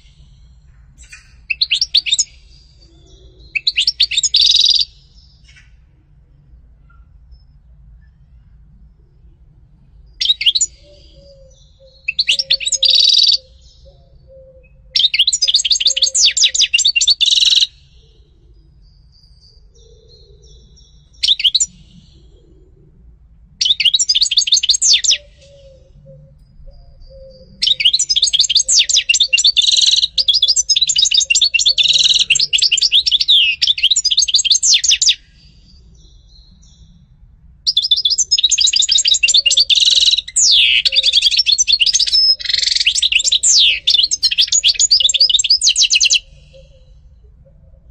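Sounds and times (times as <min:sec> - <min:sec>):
goldfinch twittering song: 0:03.4 - 0:05.7, 0:10.2 - 0:13.9, 0:15.0 - 0:17.9, 0:19.0 - 0:21.9, 0:23.6 - 0:25.8, 0:26.9 - 0:35.4, 0:37.7 - 0:46.8.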